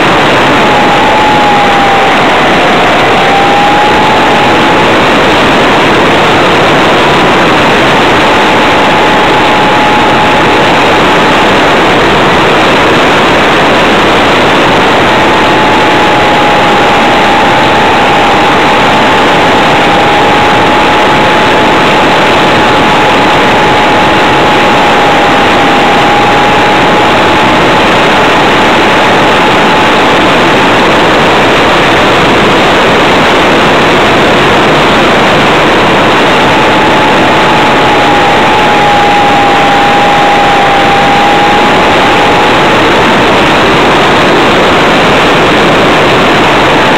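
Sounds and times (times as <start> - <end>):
model plane motor whine: 0.0 - 11.1, 12.9 - 28.4, 35.2 - 43.8.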